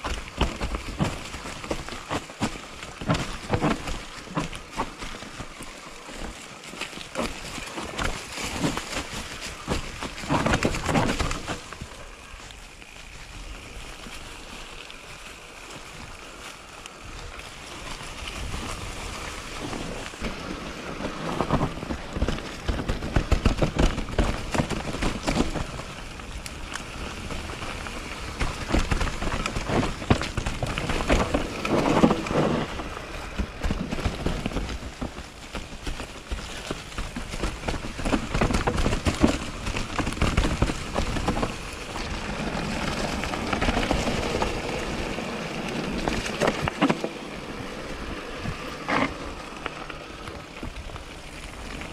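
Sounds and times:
bike clicks and rattles: 0.0s - 51.9s
tyres crunching through leaves: 0.0s - 51.9s
wind rumble on microphone: 17.0s - 51.9s.

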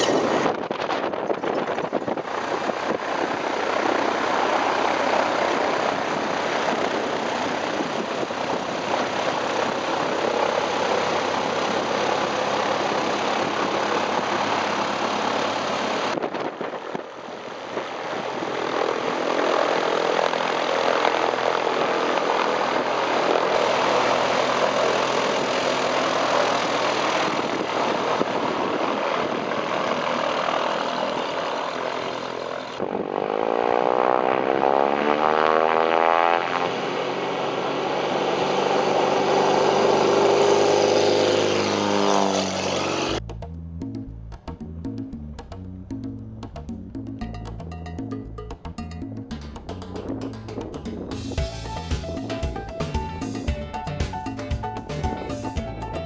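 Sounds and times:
light aircraft engine and propeller: 0.0s - 43.2s, 47.2s - 56.0s.

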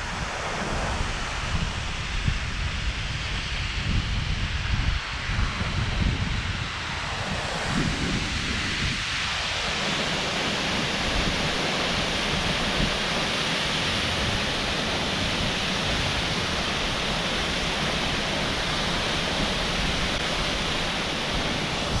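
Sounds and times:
deep rumble of waterfall: 0.0s - 22.0s
waterfall rushing: 9.6s - 22.0s.

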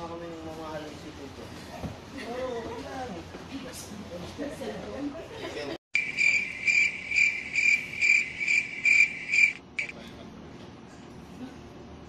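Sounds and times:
cricket chirping: 6.0s - 10.0s.

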